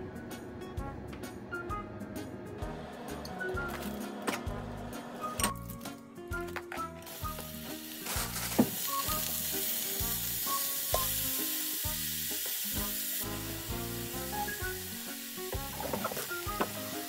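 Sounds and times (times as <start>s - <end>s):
vegetables sizzling in a frying pan: 7.1s - 17.0s.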